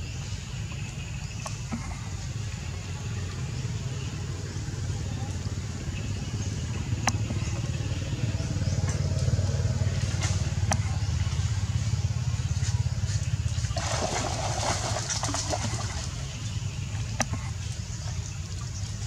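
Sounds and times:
steady low rumble: 0.0 - 19.0
water splashing: 8.8 - 19.0.

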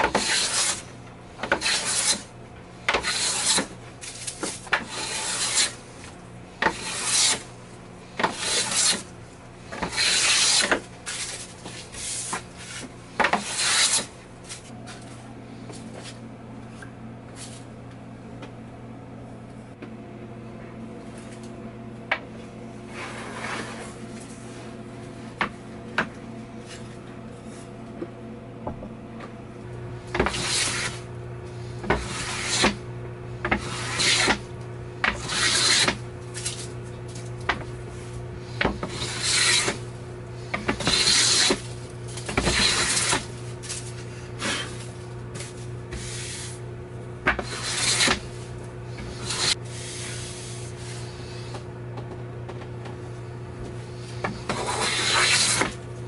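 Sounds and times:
hand plane shaving wood: 0.0 - 2.3, 2.9 - 5.8, 6.6 - 7.5, 8.2 - 9.1, 9.7 - 14.1, 30.1 - 31.1, 31.8 - 32.8, 33.4 - 34.4, 35.0 - 36.7, 38.5 - 39.9, 40.5 - 46.6, 47.3 - 48.4, 49.0 - 51.5, 54.2 - 55.8.

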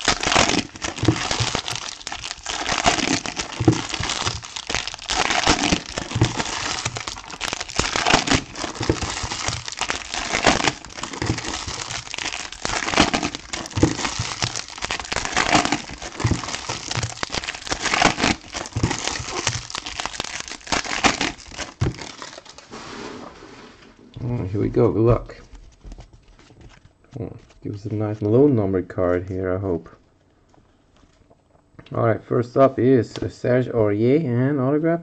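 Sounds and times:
foil wrappers crinkling: 0.0 - 23.2.

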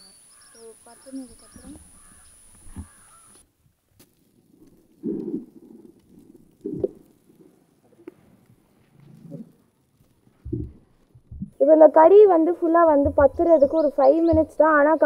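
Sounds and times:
fire crackling: 0.2 - 15.0
flames flaring with rumble: 3.6 - 11.6.

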